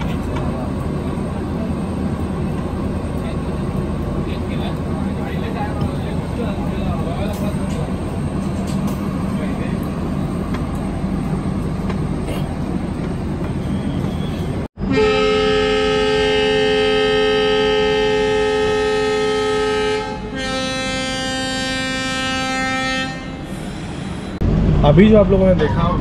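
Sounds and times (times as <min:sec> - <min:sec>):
train air horn blasts: 0:14.8 - 0:24.4
steady low rumble: 0:24.3 - 0:26.0.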